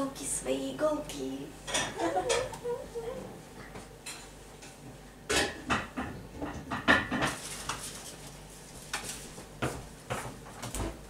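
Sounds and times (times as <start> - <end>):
crockery and cutlery clinking: 1.7 - 2.5.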